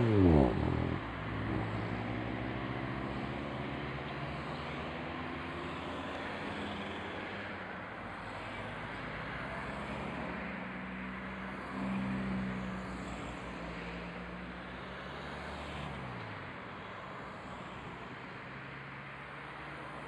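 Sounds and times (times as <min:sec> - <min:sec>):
low engine drone: 0:00.0 - 0:01.8
cars driving past: 0:00.0 - 0:20.0.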